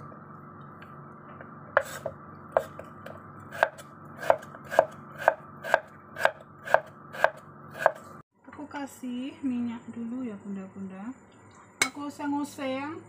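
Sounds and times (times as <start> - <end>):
knife chopping on wooden board: 1.8 - 8.0.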